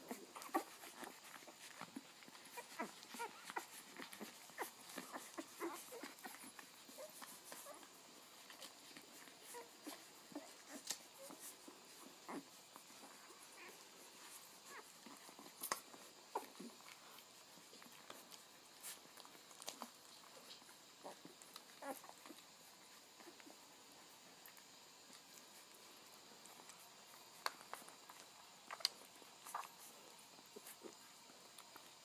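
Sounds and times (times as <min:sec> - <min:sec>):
puppies squeaking and whimpering: 0:00.1 - 0:16.8.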